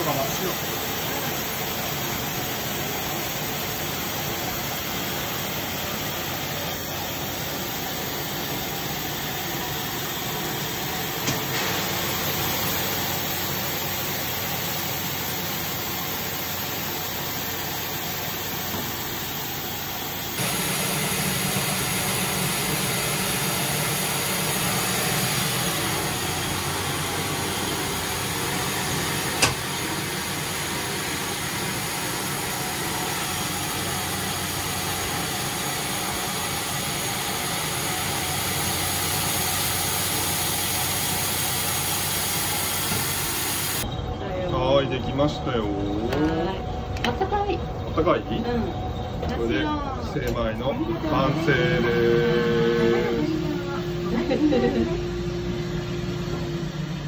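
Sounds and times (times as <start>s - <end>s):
rice streaming into hopper: 0.0s - 43.8s
rice polishing machine whirring: 0.0s - 43.9s, 50.3s - 57.0s.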